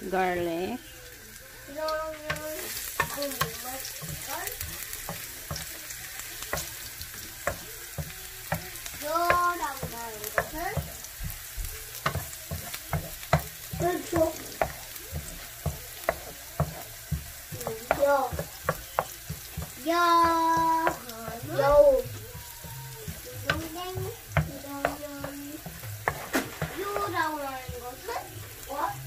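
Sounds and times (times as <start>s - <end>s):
garlic sizzling in oil: 0.0s - 29.0s
spatula tapping and scraping a pan: 1.8s - 28.9s.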